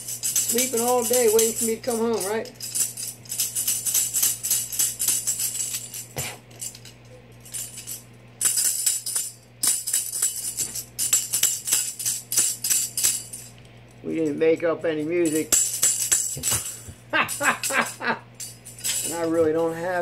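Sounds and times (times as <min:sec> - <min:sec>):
tambourine jingles rattling: 0:00.0 - 0:14.0, 0:14.9 - 0:20.0.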